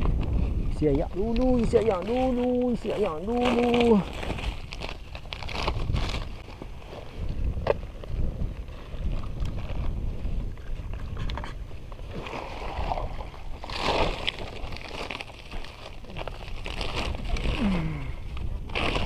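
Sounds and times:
wind rumble on microphone: 0:00.0 - 0:19.0
plastic bag rustling: 0:01.4 - 0:07.2, 0:12.1 - 0:19.0.

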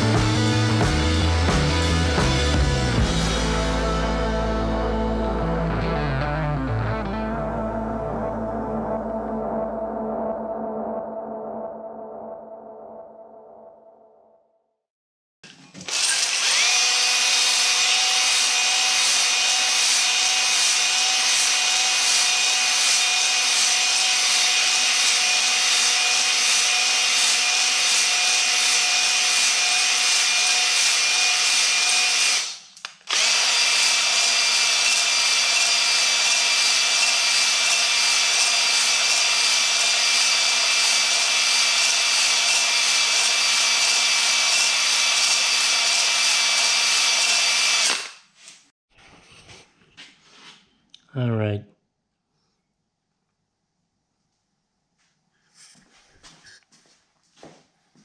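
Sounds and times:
cordless drill whining: 0:15.8 - 0:48.2.

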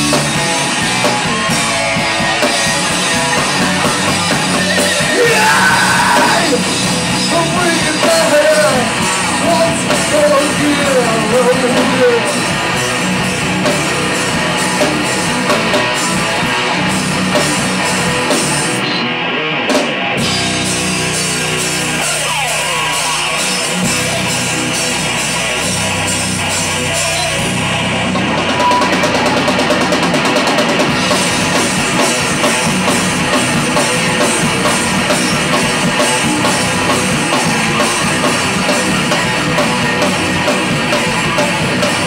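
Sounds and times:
live rock band playing: 0:00.0 - 0:42.0.

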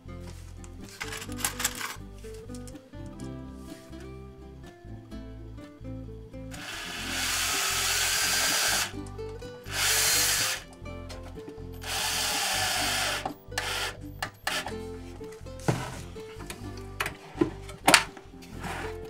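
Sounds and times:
background music: 0:00.0 - 0:19.0
cordless drill driving screw: 0:06.6 - 0:08.9, 0:09.7 - 0:10.6, 0:11.8 - 0:14.7.

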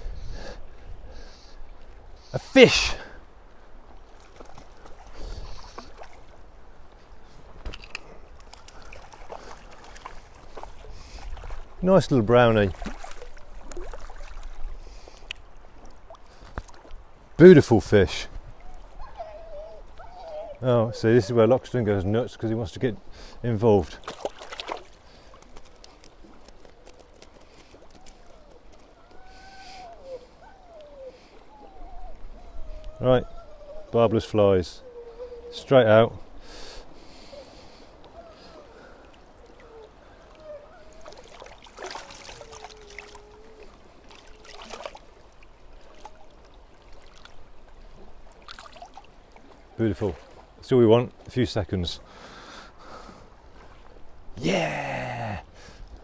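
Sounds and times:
river water flowing: 0:00.0 - 0:32.8, 0:33.6 - 0:56.0
fish splashing in water: 0:12.7 - 0:14.7, 0:24.0 - 0:29.8, 0:40.8 - 0:49.6
dog whining: 0:18.6 - 0:21.5, 0:27.9 - 0:35.7, 0:38.1 - 0:44.9.

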